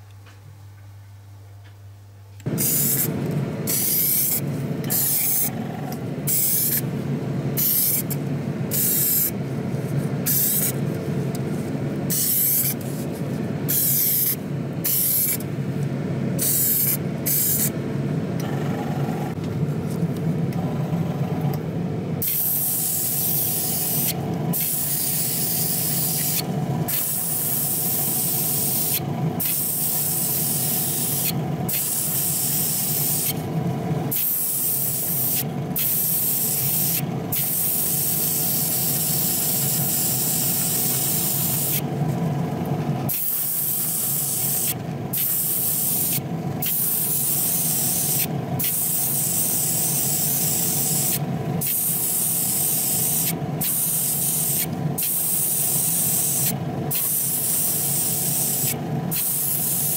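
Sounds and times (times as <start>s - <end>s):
steady low hum: 0.0s - 59.9s
spray gun hissing: 12.1s - 13.0s, 13.7s - 15.4s, 16.4s - 17.7s, 22.2s - 33.4s, 34.1s - 41.8s, 43.1s - 59.9s.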